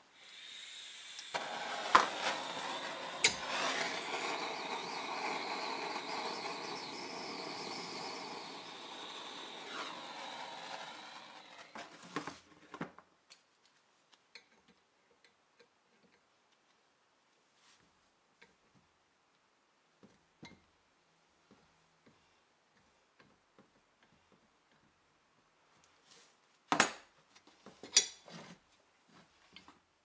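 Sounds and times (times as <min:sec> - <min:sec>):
gas torch hissing: 0:00.0 - 0:11.8.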